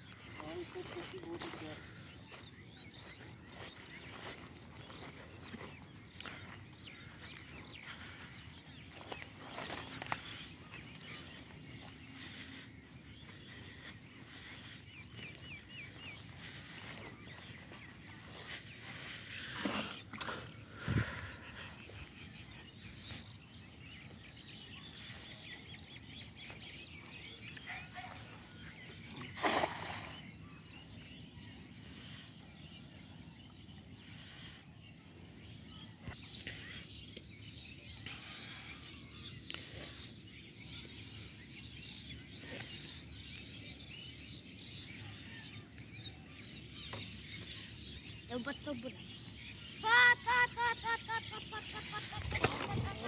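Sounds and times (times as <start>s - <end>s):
net splashing on water: 29.4s - 30.2s.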